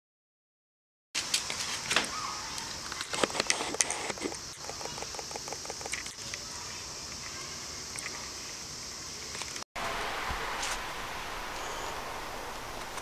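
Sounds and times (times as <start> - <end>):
steady high hiss: 1.2 - 13.0
camera motor noise: 2.9 - 6.3.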